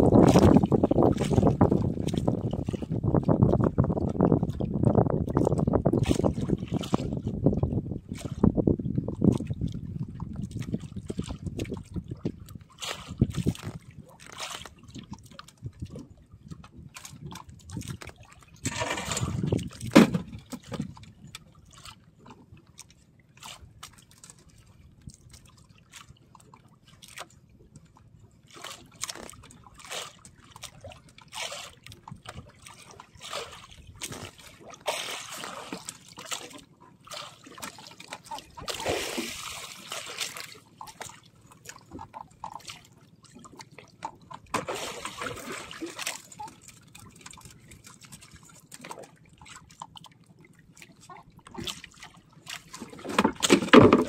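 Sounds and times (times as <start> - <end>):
water splashing against boat hull: 0.0 - 54.0
knock on boat: 19.8 - 20.8, 52.9 - 54.0.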